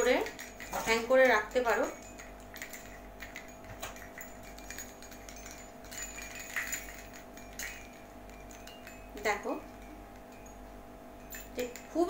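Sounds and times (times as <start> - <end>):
small bells tinkling: 0.0 - 12.0.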